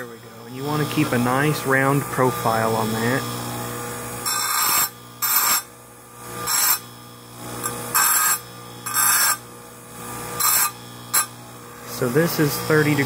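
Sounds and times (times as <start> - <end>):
grinder motor humming: 0.0 - 13.0
stone scraping grinding wheel: 4.2 - 5.7, 6.3 - 6.9, 7.6 - 9.5, 10.3 - 11.4.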